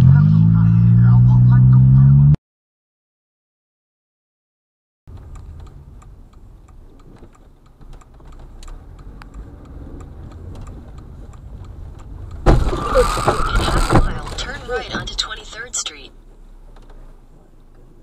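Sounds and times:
car engine rumble: 0.0s - 2.4s, 5.1s - 18.0s
turn signal clicking: 5.1s - 18.0s.

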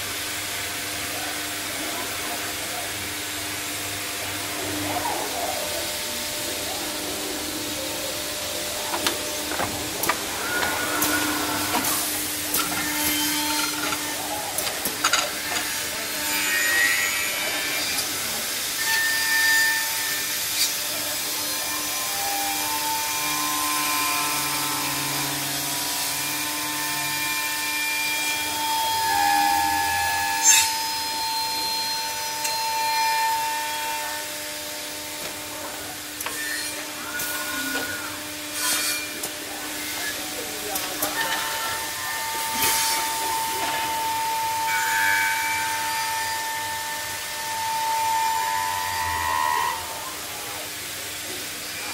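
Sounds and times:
machine motor whine: 1.7s - 18.4s
saw cutting wood: 4.2s - 51.9s.

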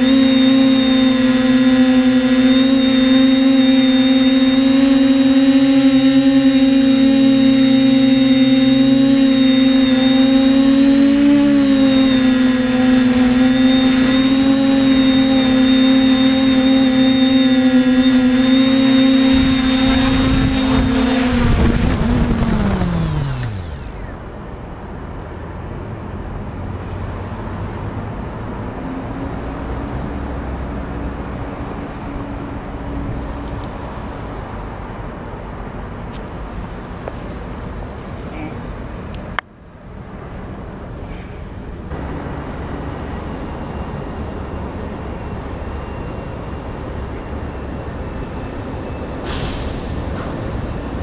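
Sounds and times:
quadcopter motors humming: 0.0s - 25.2s, 40.4s - 51.0s.

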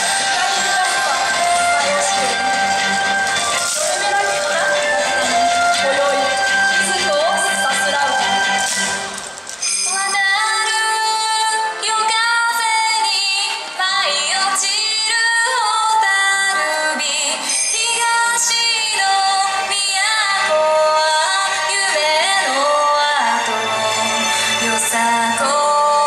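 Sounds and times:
woman singing: 0.0s - 2.4s, 3.6s - 9.0s, 9.8s - 26.0s
dance song over sound system: 0.0s - 15.4s.

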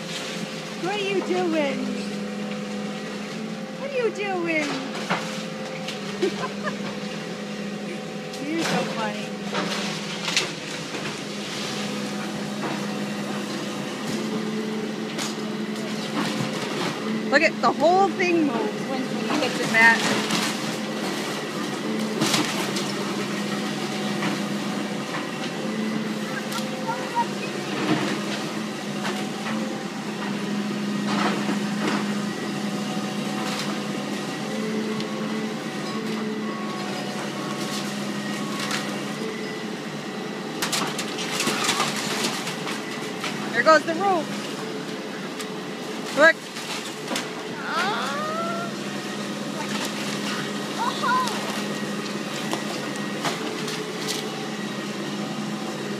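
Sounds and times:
excavator engine running: 0.0s - 55.9s
machine humming: 0.0s - 55.9s.

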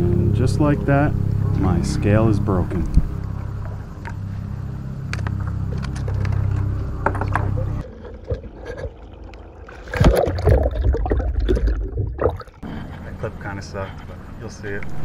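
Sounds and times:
steady low rumble: 0.0s - 8.4s
water noise: 0.0s - 12.7s.

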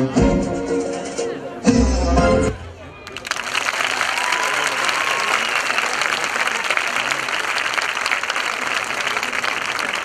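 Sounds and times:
large audience applauding: 3.0s - 10.0s.

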